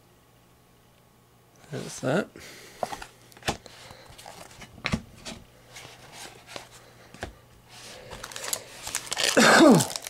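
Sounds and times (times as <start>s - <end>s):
foil wrapper crinkling: 7.8s - 10.0s.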